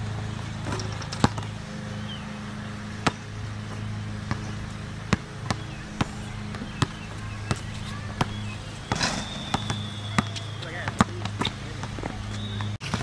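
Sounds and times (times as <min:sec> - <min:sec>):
steady low hum: 0:00.0 - 0:12.4
basketball bouncing on hard court: 0:03.0 - 0:13.0.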